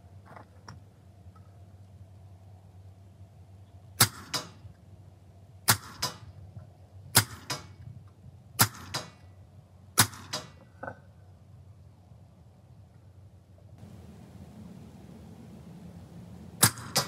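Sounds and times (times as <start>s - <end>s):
air pistol shots: 4.0s - 4.6s, 5.7s - 6.3s, 7.2s - 7.7s, 8.6s - 9.2s, 10.0s - 10.5s, 16.6s - 17.0s.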